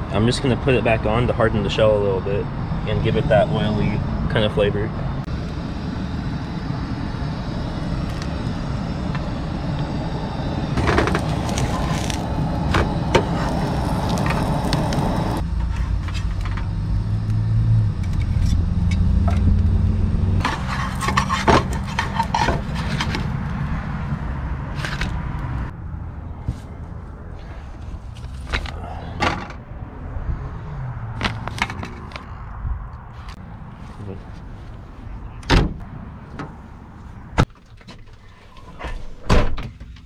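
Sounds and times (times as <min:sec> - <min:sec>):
camp stove low rumble: 0:00.0 - 0:25.7
spatula scraping a pan: 0:20.4 - 0:23.2.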